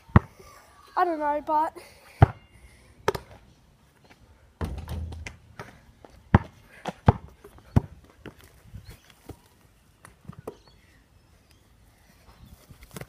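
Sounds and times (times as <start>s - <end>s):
dull thump: 4.6s - 5.7s.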